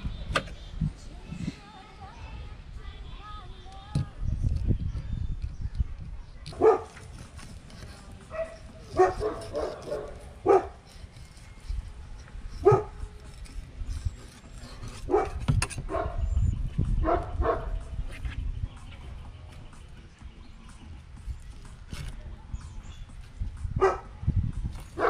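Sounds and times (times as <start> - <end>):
dog barking: 6.6 - 7.0, 8.3 - 10.8, 12.6 - 13.0, 15.1 - 16.2, 17.0 - 17.8, 23.8 - 24.1.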